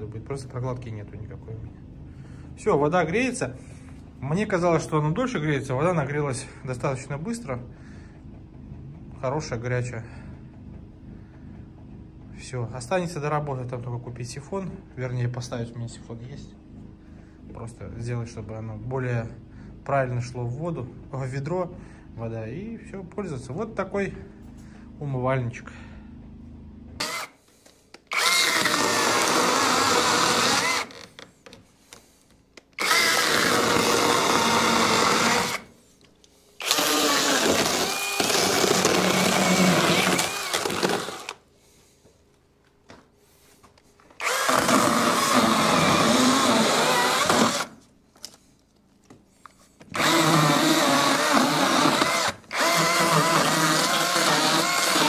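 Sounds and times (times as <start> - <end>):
power saw cutting wood: 28.1 - 31.0, 32.8 - 35.7, 36.6 - 41.4, 44.2 - 47.7, 49.9 - 55.0.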